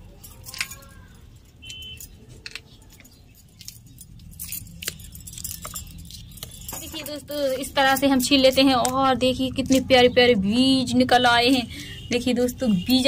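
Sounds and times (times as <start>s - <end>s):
bangles clinking: 0.0s - 13.0s
bean pods snapping: 2.4s - 6.7s.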